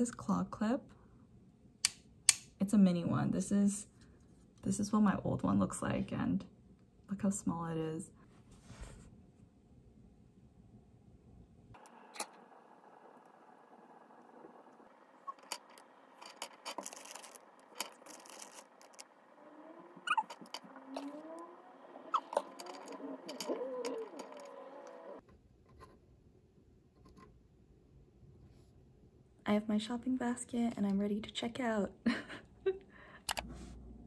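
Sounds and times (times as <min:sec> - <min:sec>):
faint squeaks: 0:13.2 - 0:25.2
plastic wrappers crinkling: 0:15.3 - 0:20.6
plastic parts clicking: 0:15.3 - 0:25.2.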